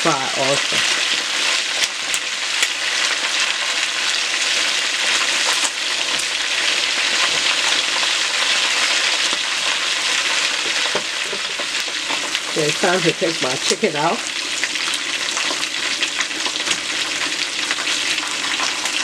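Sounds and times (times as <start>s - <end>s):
chicken sizzling in hot oil: 0.0s - 19.0s.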